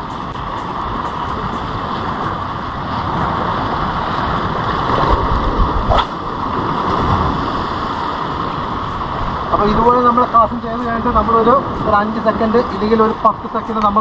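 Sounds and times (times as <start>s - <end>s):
sea noise: 0.0s - 14.0s
wind on microphone: 0.0s - 14.0s
rising swish: 3.1s - 9.4s.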